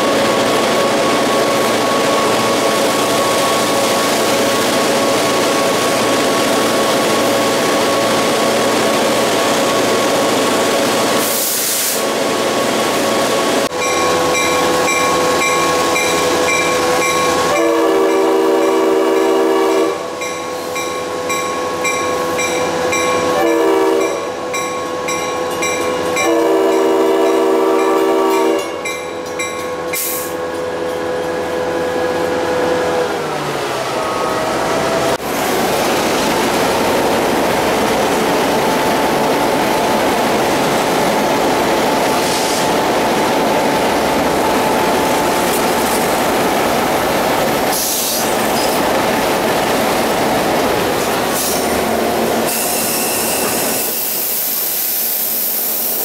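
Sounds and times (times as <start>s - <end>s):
diesel locomotive engine running: 0.0s - 56.0s
locomotive air horn blasts: 17.4s - 20.1s, 23.3s - 24.4s, 26.2s - 28.7s.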